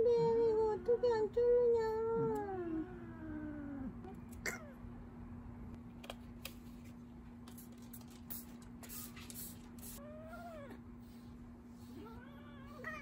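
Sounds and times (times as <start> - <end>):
cat meowing: 12.0 - 13.0.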